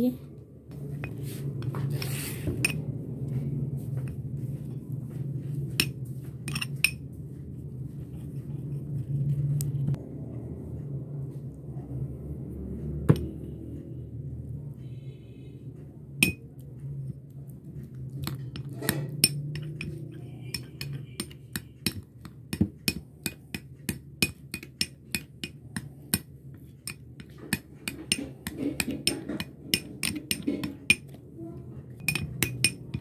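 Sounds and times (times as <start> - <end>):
low steady hum: 0.0 - 33.0
spoon clinking against glass bowl: 16.2 - 16.4, 32.0 - 33.0.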